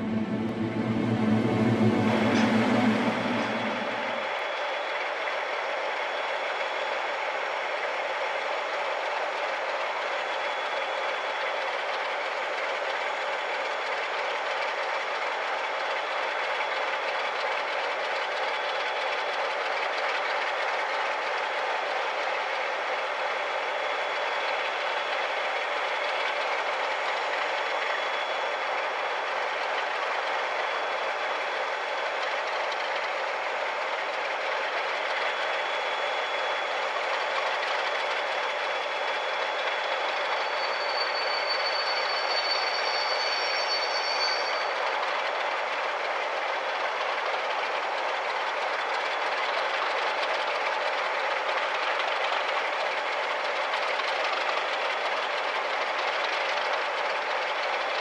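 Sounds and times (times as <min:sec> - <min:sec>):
high-pitched squeal: 0:00.0 - 0:05.0
train wheels rumbling on rails: 0:00.0 - 0:58.0.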